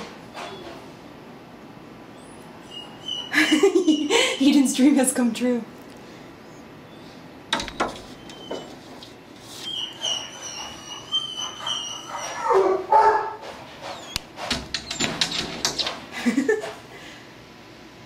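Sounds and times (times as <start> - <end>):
dog whining: 2.1 - 4.4, 8.0 - 15.9
sharp knocks: 7.5 - 8.2, 14.4 - 16.0
dogs barking and yipping: 7.8 - 16.1.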